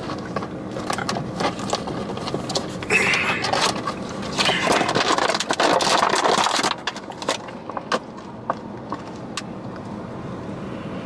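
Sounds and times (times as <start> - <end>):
plastic lid crackling and crinkling: 0.0 - 8.3.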